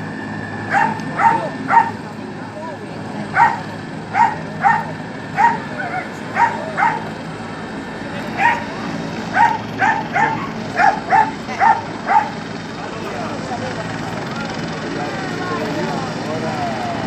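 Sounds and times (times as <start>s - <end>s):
murmur of voices: 0.0s - 17.0s
dog barking: 0.7s - 2.0s, 3.3s - 7.1s, 8.4s - 8.7s, 9.3s - 12.4s.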